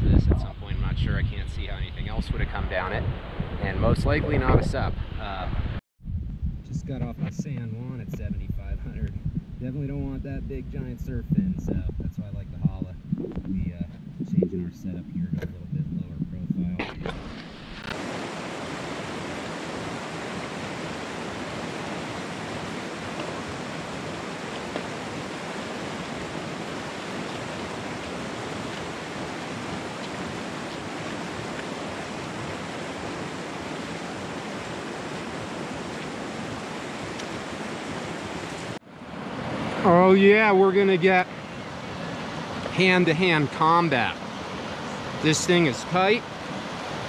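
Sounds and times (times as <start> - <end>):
creek water rushing over rocks: 17.0 - 40.2.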